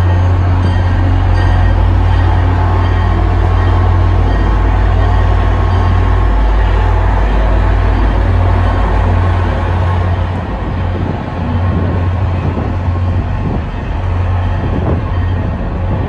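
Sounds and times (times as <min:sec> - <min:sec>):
train rumbling across bridge: 0:00.0 - 0:16.0.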